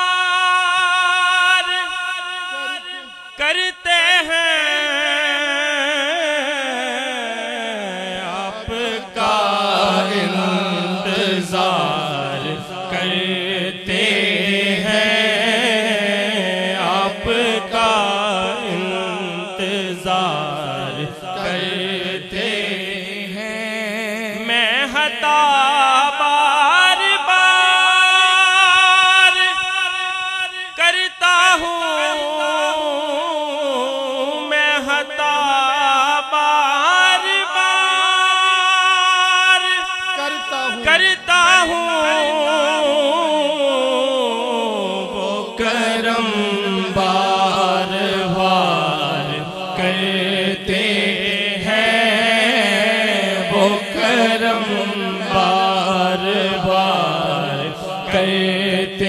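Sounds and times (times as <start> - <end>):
man singing unaccompanied: 0.0 - 59.0
low vocal drone: 5.6 - 23.6, 40.2 - 59.0.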